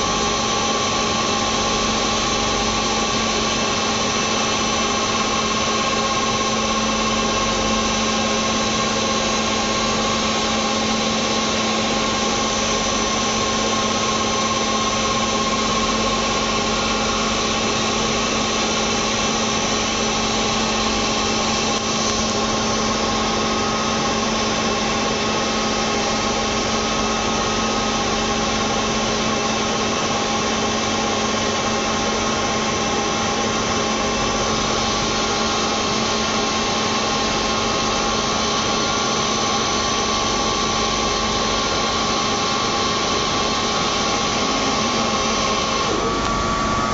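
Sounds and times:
machine humming: 0:00.0 - 0:46.9.

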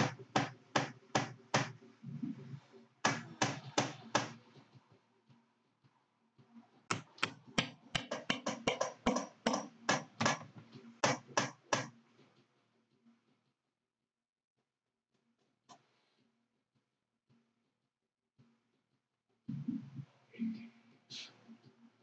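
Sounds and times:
hammer tapping a metal punch: 0:06.9 - 0:11.9.

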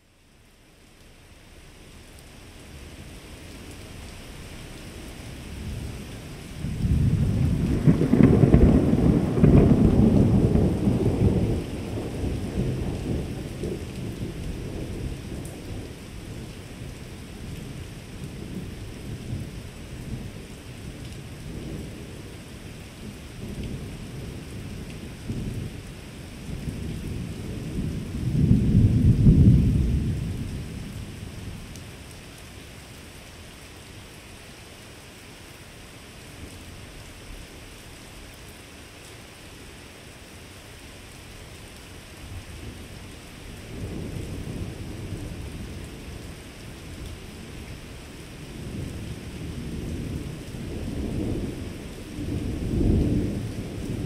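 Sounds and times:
rolling thunder: 0:06.6 - 0:16.5, 0:26.4 - 0:31.6, 0:48.6 - 0:54.0.

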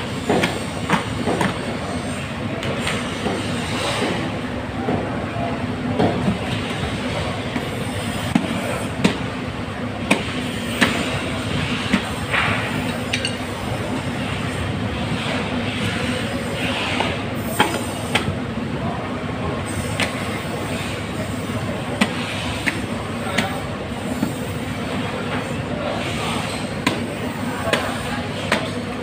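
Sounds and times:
busy fish market din: 0:00.0 - 0:29.0
sharp metallic clinks and knocks: 0:12.8 - 0:13.5.

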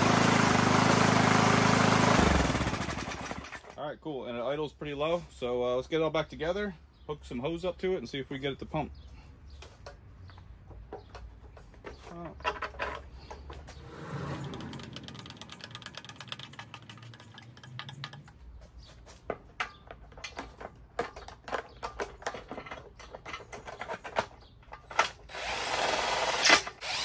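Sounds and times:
plastic housing clicking and knocking: 0:10.7 - 0:13.6, 0:14.5 - 0:18.6, 0:19.3 - 0:25.2
power drill whirring: 0:25.3 - 0:27.0.

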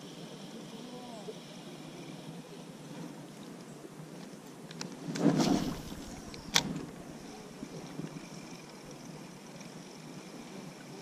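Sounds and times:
sharp click: 0:04.7 - 0:06.9
rustling whoosh of a rod: 0:04.9 - 0:08.4.

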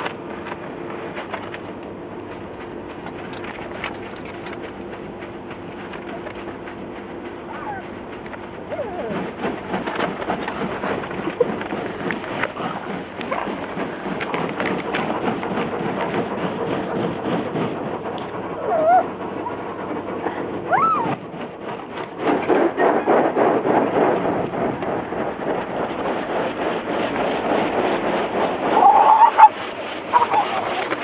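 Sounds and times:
car wash spray and brushes: 0:00.0 - 0:31.0
dog whining: 0:07.4 - 0:08.0, 0:08.6 - 0:10.1, 0:18.5 - 0:19.7, 0:20.6 - 0:21.3, 0:28.8 - 0:30.9.

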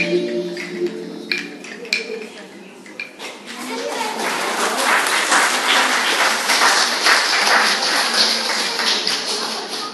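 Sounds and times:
children clapping: 0:03.5 - 0:09.9.

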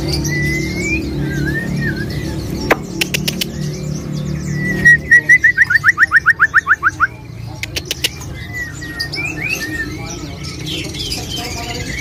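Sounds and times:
caged birds chirping faintly: 0:00.0 - 0:12.0
songbird whistling song: 0:00.0 - 0:12.0
sharp clicks: 0:02.7 - 0:03.5.

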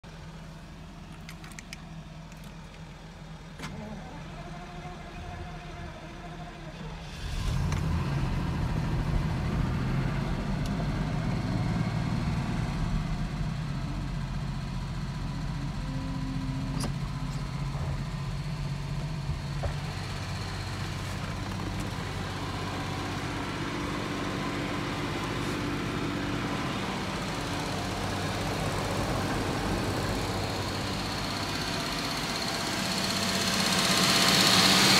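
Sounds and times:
car engine idling: 0:00.0 - 0:34.9.

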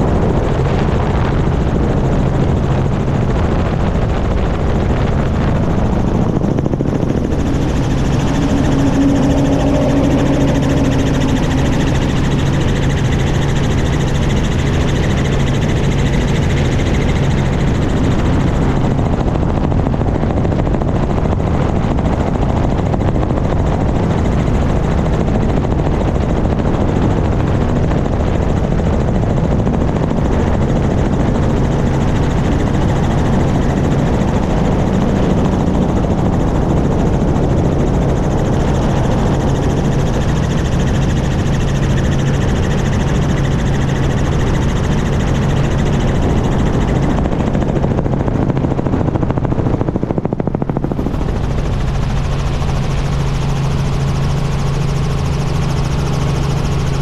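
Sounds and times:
helicopter rotor and engine hum: 0:00.0 - 0:57.0
rush of air: 0:05.1 - 0:15.4, 0:50.8 - 0:53.4.

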